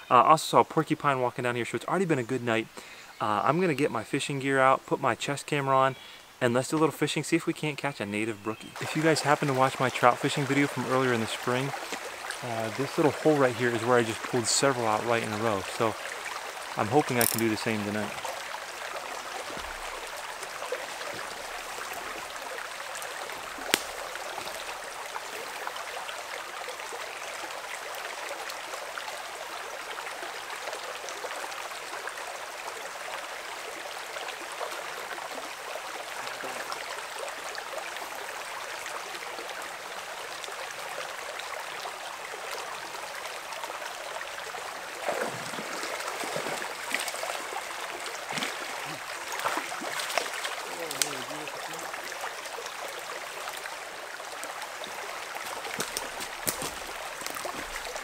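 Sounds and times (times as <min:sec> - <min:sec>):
creek running: 0:00.0 - 0:58.0
fish splashing at surface: 0:23.4 - 0:24.6, 0:55.4 - 0:58.0.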